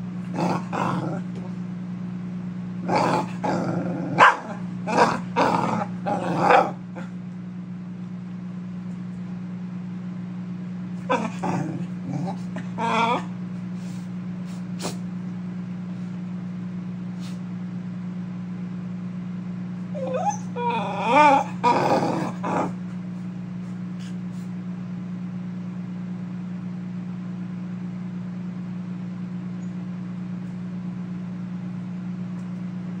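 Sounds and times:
steady low hum: 0.0s - 33.0s
dog whining: 2.9s - 7.1s, 11.0s - 13.4s, 19.9s - 22.8s.

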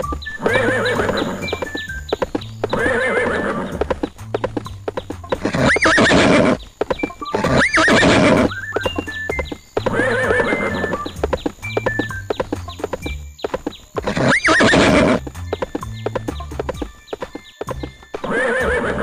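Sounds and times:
hooves clip-clopping: 0.0s - 19.0s
horses whinnying: 0.1s - 1.8s, 2.6s - 4.2s, 5.4s - 6.6s, 7.2s - 11.4s, 14.0s - 15.3s, 18.2s - 19.0s.

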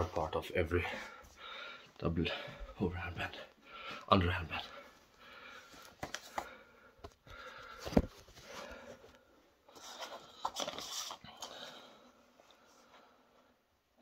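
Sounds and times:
man panting heavily: 0.9s - 2.8s.

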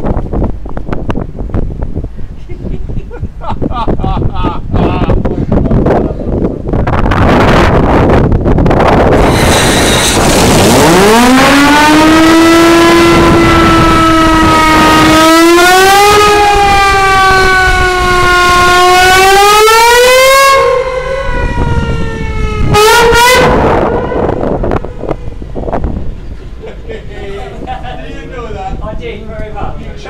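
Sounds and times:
wind on microphone: 0.0s - 26.6s
steam whistle blowing: 22.4s - 24.6s.

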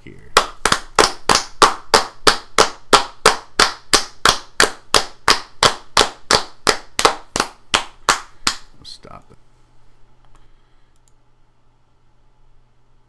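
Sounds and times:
person clapping hands: 0.4s - 8.7s.

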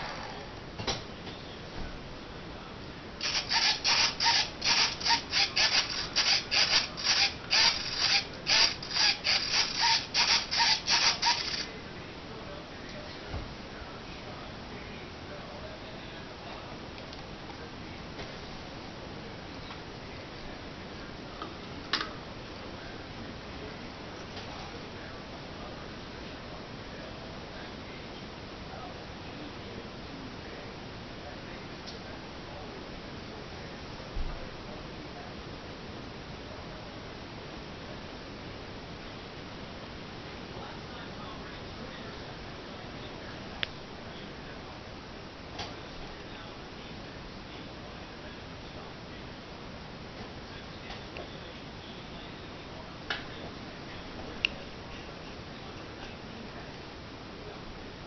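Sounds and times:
low hiss: 0.0s - 58.0s
rasping rub strokes: 3.2s - 11.7s.

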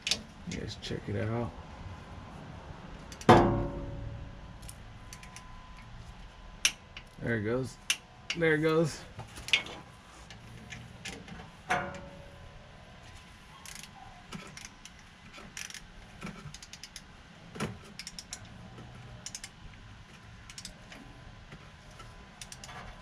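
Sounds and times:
ratchet clicks: 3.1s - 3.3s, 4.6s - 5.9s, 13.6s - 17.1s, 17.8s - 19.6s, 20.4s - 21.0s, 21.9s - 23.0s.

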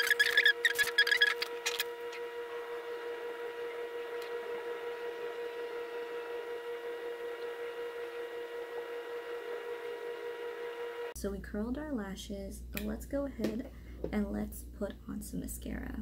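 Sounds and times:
short squeaky chirps: 0.0s - 1.9s
steady even hum: 0.0s - 16.0s.

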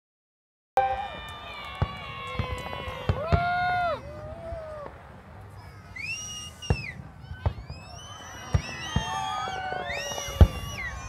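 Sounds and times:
crowd cheering and whooping: 0.8s - 11.0s
firework bang: 6.5s - 11.0s.

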